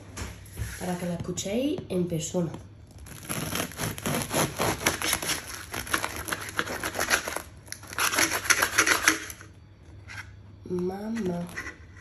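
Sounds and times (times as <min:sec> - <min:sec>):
bread knife sawing crusty loaf: 0:03.2 - 0:07.2.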